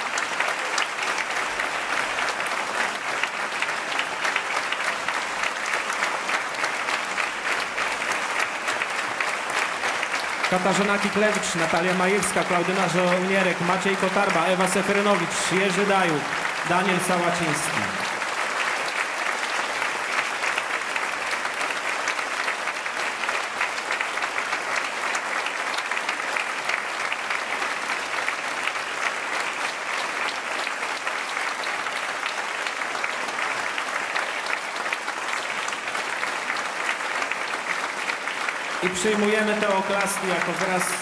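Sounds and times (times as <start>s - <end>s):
large audience applauding: 0.0s - 41.0s.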